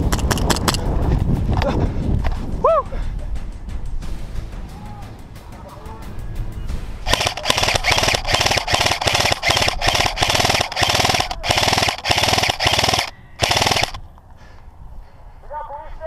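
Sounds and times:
airsoft gun firing bursts: 0:07.1 - 0:14.0.

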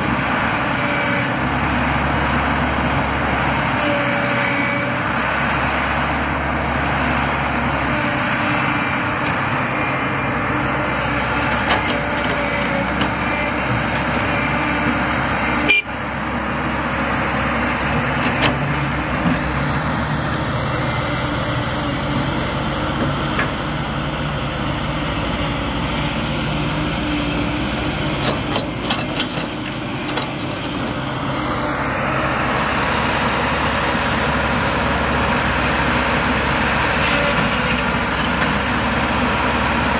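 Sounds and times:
diesel engine running: 0:00.0 - 0:39.9
soil and rocks clunking: 0:06.3 - 0:15.8, 0:17.3 - 0:23.8, 0:25.4 - 0:33.2, 0:35.3 - 0:39.9.

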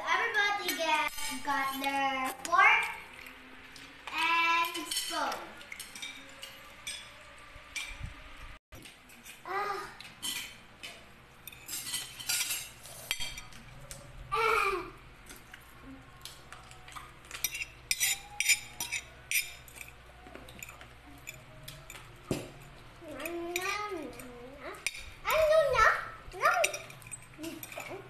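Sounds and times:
cutlery clinking on plates: 0:10.0 - 0:14.1, 0:16.4 - 0:25.2, 0:26.6 - 0:28.0.

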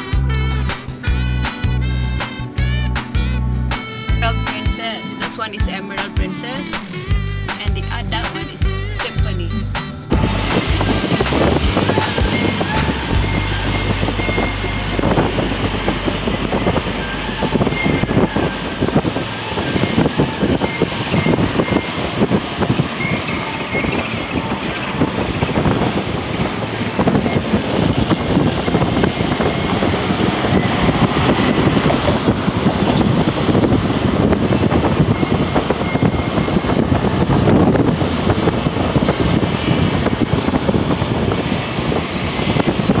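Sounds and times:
car road noise: 0:00.0 - 0:05.1, 0:06.7 - 0:43.0
rushing wind: 0:00.0 - 0:07.5, 0:08.1 - 0:43.0.

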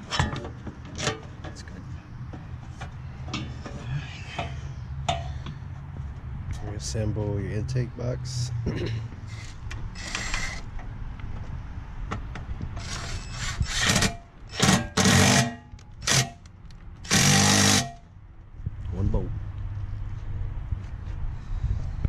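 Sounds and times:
impact driver bursts: 0:09.3 - 0:10.6, 0:12.8 - 0:16.4, 0:17.0 - 0:18.0.

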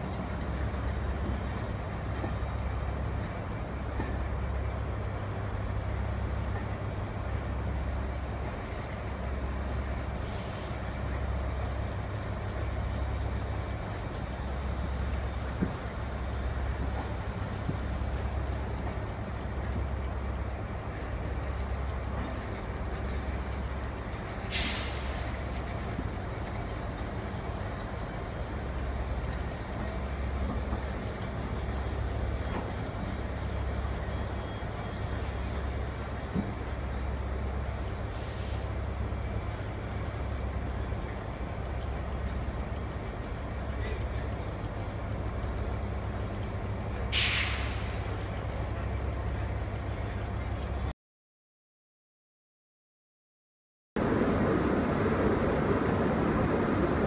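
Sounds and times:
electric locomotive drone: 0:00.0 - 0:24.4, 0:54.0 - 0:57.0
train wheels rumbling on rail: 0:00.0 - 0:50.9, 0:54.0 - 0:57.0.

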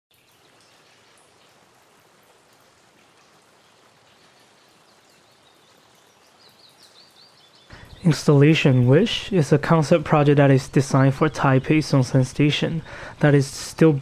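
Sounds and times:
running water: 0:00.1 - 0:14.0.

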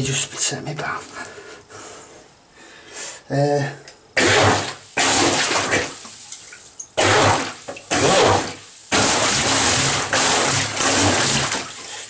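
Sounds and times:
water churning and rushing: 0:07.0 - 0:11.9.

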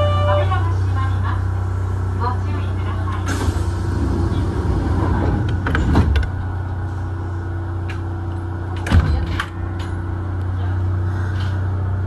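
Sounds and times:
train humming: 0:00.0 - 0:12.0.

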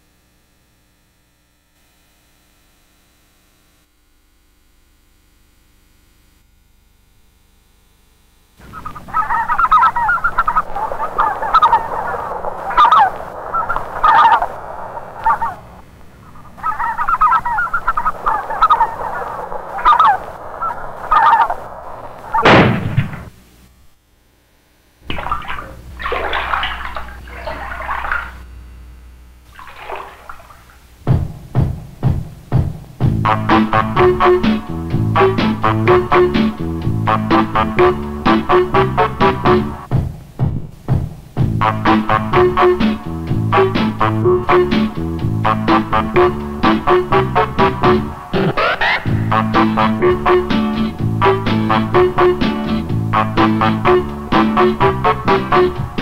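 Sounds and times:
loud downward sweeping call: 0:08.6 - 0:22.5
geese and ducks calling: 0:08.6 - 0:22.6, 0:25.2 - 0:28.4, 0:45.5 - 0:55.8
sharp thumps: 0:22.4 - 0:23.4.

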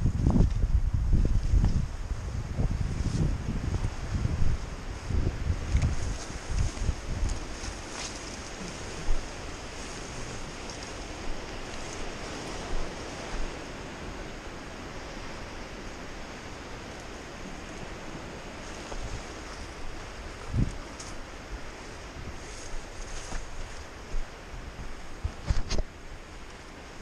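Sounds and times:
wind rushing on microphone: 0:00.0 - 0:27.0.

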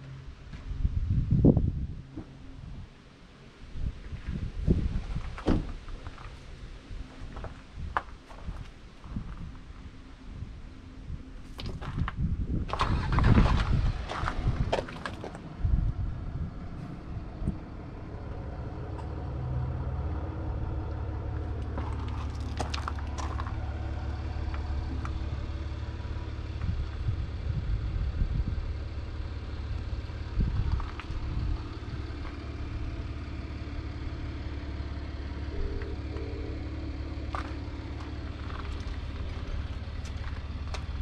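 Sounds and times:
diesel engine idling: 0:12.2 - 0:41.0.

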